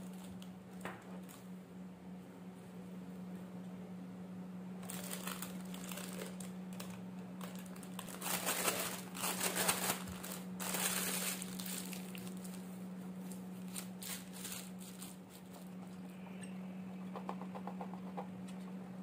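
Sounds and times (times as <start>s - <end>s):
plastic piping bag crinkling: 0.0s - 0.5s, 4.8s - 15.8s.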